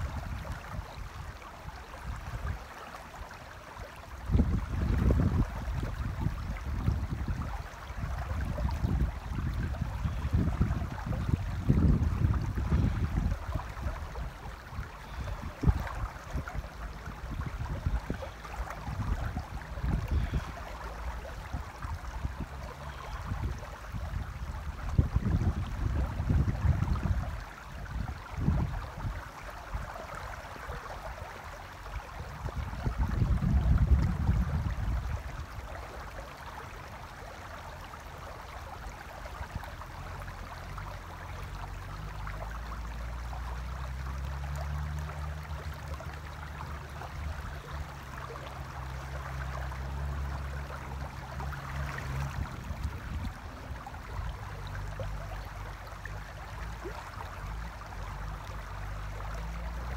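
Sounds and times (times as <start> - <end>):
wind gusts on microphone: 0.0 - 2.6, 4.2 - 30.0, 32.0 - 35.8, 49.3 - 55.2
river water running over gravel: 0.0 - 59.9.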